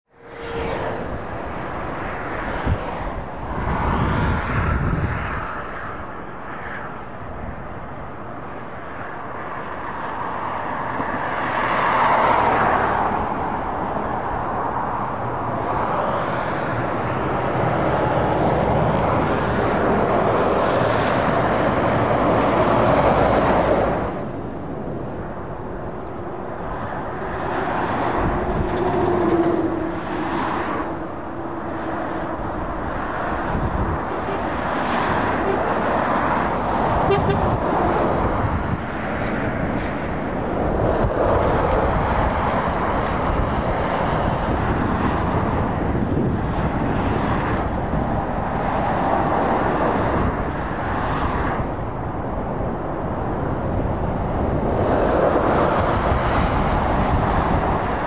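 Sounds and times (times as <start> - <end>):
steady road hum: 0.0 - 58.0
vehicles passing: 0.1 - 58.0.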